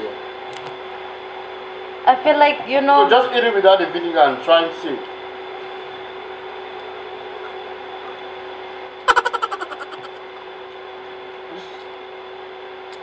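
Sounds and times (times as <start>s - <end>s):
room hum with faint tones: 0.0s - 13.0s
person's short vocal outburst: 9.1s - 10.2s.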